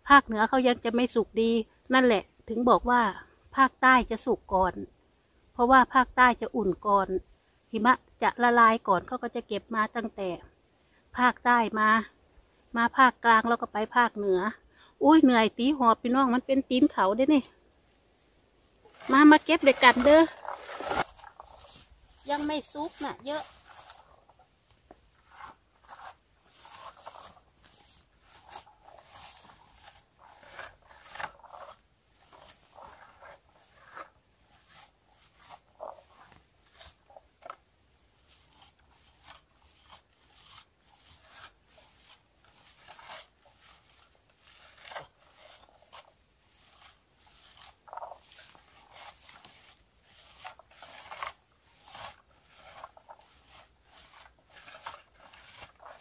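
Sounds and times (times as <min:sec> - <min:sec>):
berry picker rustling through bushes: 0:18.8 - 0:56.0.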